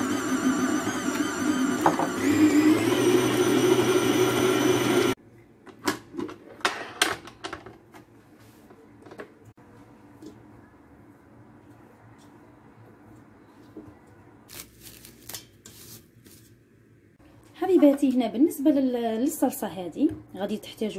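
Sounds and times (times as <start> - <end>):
stand mixer motor whine: 0.0 - 5.2.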